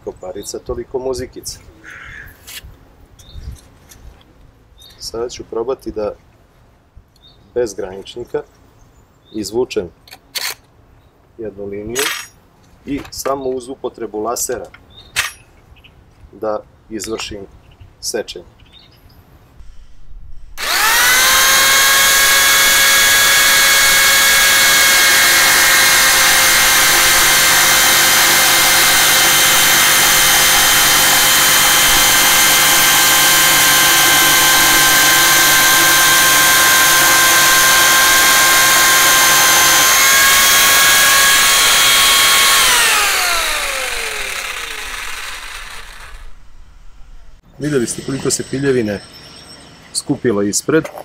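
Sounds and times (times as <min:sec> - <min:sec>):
jigsaw blade rasping wood: 0:20.6 - 0:46.3
jigsaw motor whine: 0:20.6 - 0:46.8.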